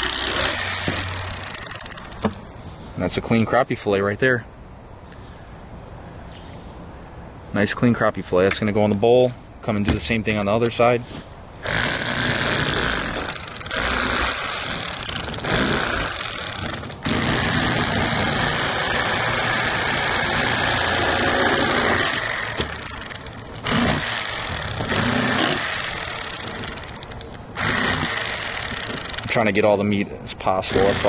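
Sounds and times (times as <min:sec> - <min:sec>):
electric knife running: 0:00.0 - 0:02.1, 0:11.6 - 0:29.3, 0:30.7 - 0:31.0.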